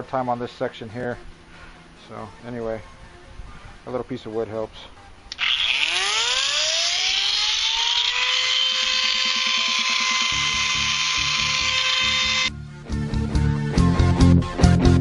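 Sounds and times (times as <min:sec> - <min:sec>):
router motor whine: 0:05.3 - 0:12.5.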